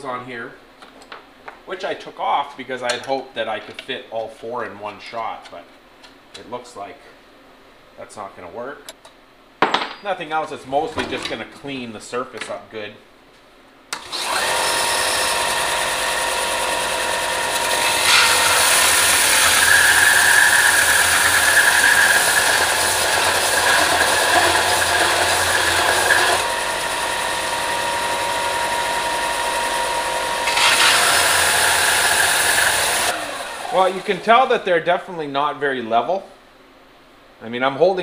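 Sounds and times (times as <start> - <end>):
electric sander whine: 14.0 - 34.0
metal grinding rasp: 17.5 - 26.6, 30.4 - 33.1.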